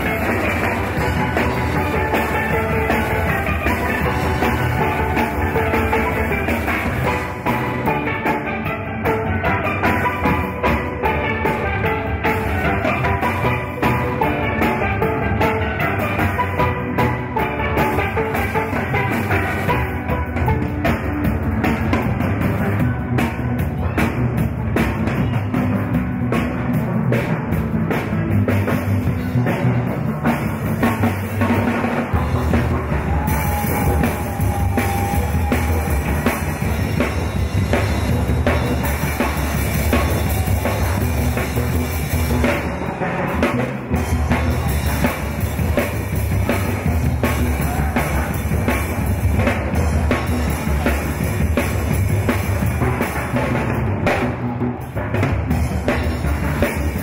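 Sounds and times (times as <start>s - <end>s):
steel pans playing melody: 0.0s - 23.9s
drum kit steady beat: 0.0s - 57.0s.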